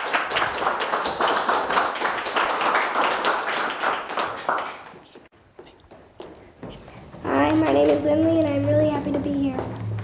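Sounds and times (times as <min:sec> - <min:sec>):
small audience applauding: 0:00.0 - 0:05.3.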